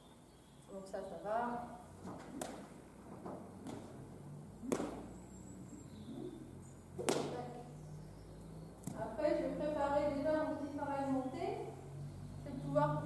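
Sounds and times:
whip cracking: 0:02.0 - 0:04.0, 0:04.6 - 0:05.1, 0:07.0 - 0:07.5.

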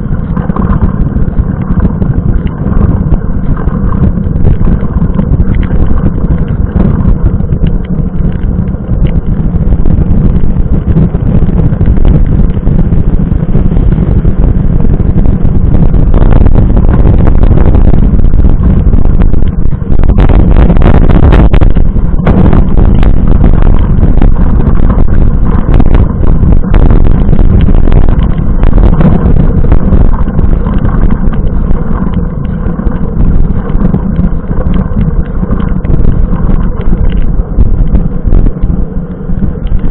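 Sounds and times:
wind buffeting microphone: 0:00.0 - 0:39.9.

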